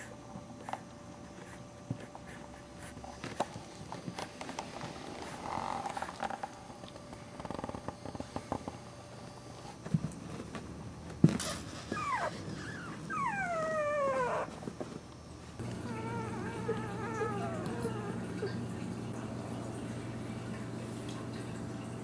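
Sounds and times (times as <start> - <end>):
newborn puppies squealing: 11.9 - 14.5, 15.8 - 18.2
puppy whimpering: 11.9 - 14.6, 15.7 - 18.6.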